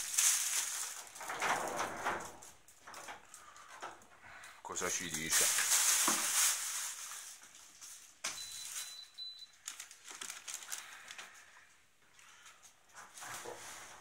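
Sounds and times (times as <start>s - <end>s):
plastic wrapping crinkling: 0.0s - 3.7s, 4.7s - 14.0s
high electronic beep: 8.4s - 9.5s.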